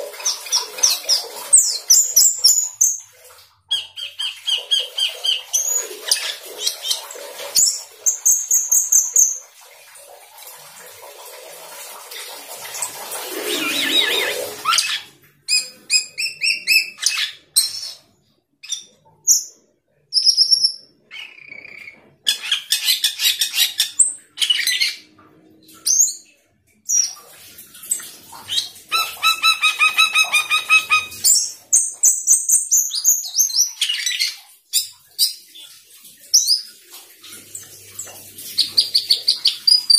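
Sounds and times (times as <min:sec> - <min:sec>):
starling singing: 0:13.3 - 0:17.9, 0:28.6 - 0:31.6.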